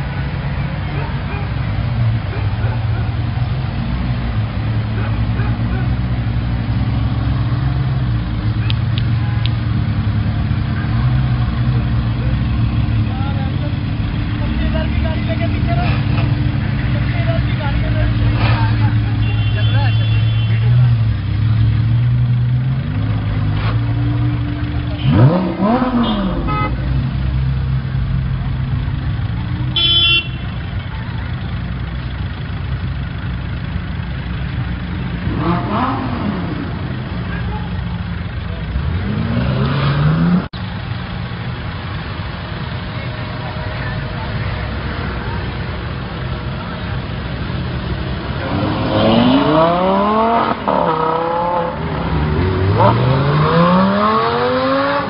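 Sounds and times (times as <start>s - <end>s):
car engine idling: 0.0s - 39.2s, 40.5s - 48.7s
car engine revving: 20.7s - 29.7s, 32.8s - 42.7s, 43.3s - 55.0s
short car horn toot: 29.8s - 30.4s.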